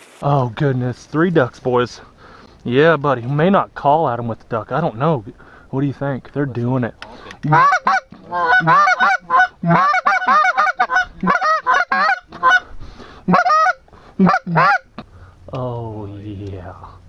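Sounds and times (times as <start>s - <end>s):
duck call quacks: 7.1s - 14.9s.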